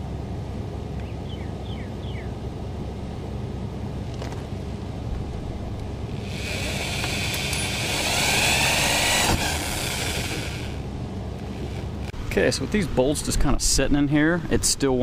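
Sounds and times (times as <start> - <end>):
electric drill motor whine: 6.1 - 12.1.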